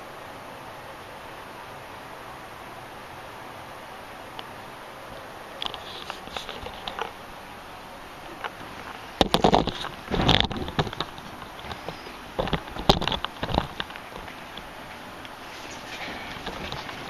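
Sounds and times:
clothing brushing microphone: 5.6 - 7.2, 8.4 - 13.8
camera handling bumps and clicks: 9.2 - 14.4.

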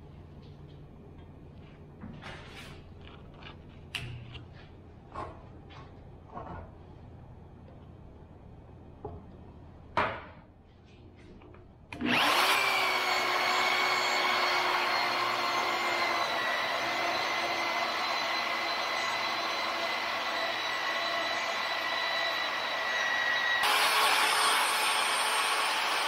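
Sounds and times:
magnetic drill motor whining: 12.0 - 26.0.

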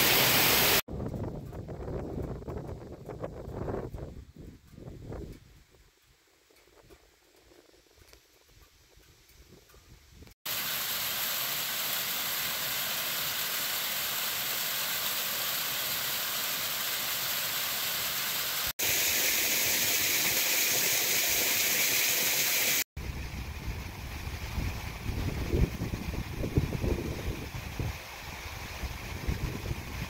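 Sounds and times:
water rushing over rocks: 0.0 - 0.8.

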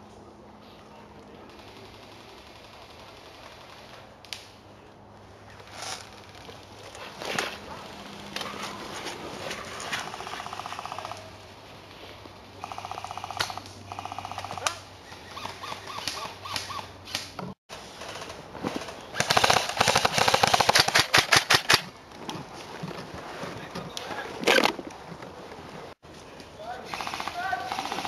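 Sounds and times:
airsoft guns firing bursts: 19.2 - 21.8, 26.8 - 28.0.

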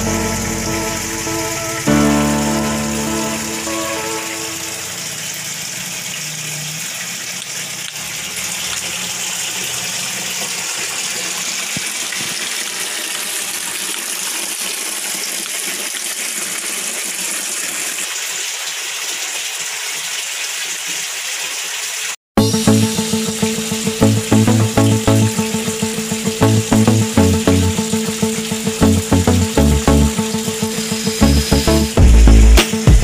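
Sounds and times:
water gushing and splashing: 0.0 - 22.2.

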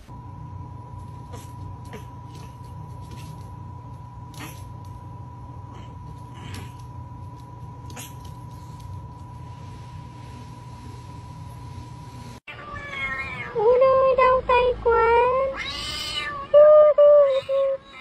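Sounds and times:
faint steady hum: 0.0 - 18.0
cat meowing: 12.5 - 13.6, 15.5 - 16.6.

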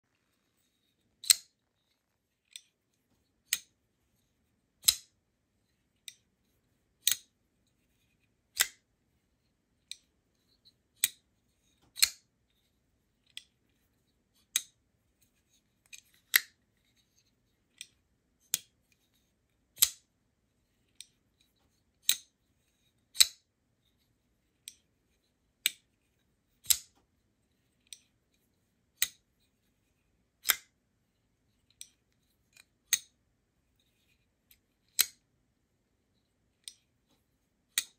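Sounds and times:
folding knife blade clicking: 1.2 - 1.5, 4.8 - 5.1, 7.0 - 7.3, 8.6 - 8.8, 11.9 - 12.2, 19.8 - 20.0, 23.2 - 23.4, 26.6 - 27.0, 35.0 - 35.2.

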